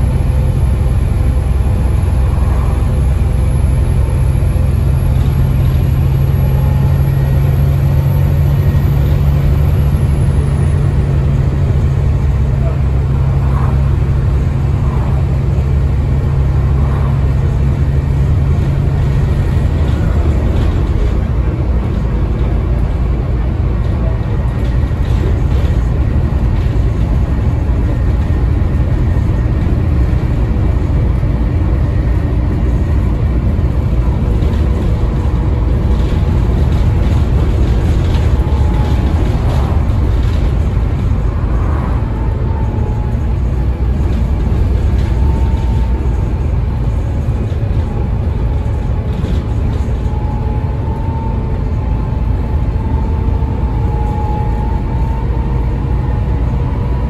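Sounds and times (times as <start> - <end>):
bus diesel engine running: 0.0 - 57.0
road and body noise: 0.0 - 57.0.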